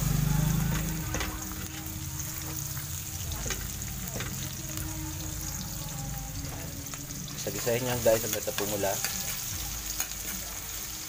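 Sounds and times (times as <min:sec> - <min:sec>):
garlic sizzling in hot oil: 0:00.0 - 0:11.0.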